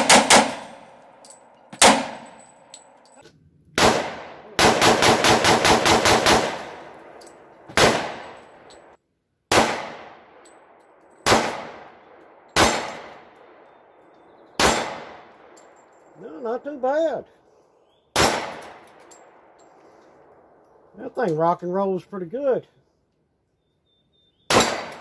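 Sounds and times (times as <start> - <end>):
pistol shots with echo: 0.0 - 2.5, 3.8 - 8.7, 9.5 - 13.8, 14.5 - 15.8, 18.1 - 19.6, 24.5 - 25.0.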